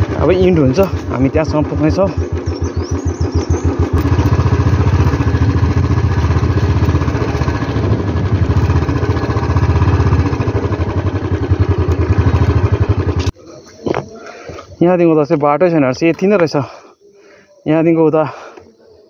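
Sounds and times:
motorcycle engine running: 0.0 - 14.1.

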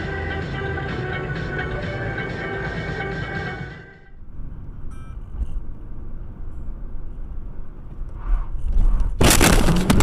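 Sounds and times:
car cabin road rumble: 4.2 - 10.0
car collision crashing and scraping: 9.0 - 10.0.

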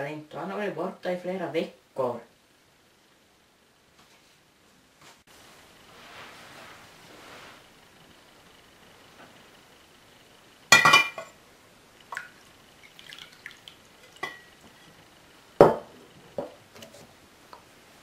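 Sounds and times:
steel jug clinking: 14.0 - 14.5.

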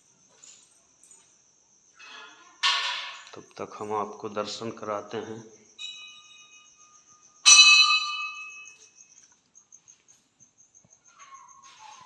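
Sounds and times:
temple bell ringing: 7.4 - 8.7.

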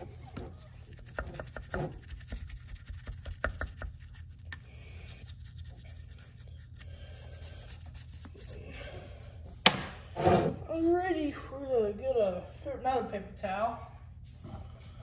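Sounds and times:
toothbrush scrubbing metal: 0.8 - 8.6.

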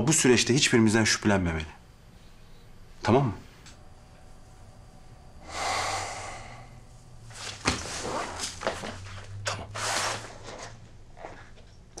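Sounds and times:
breathy exhale: 5.4 - 7.0.

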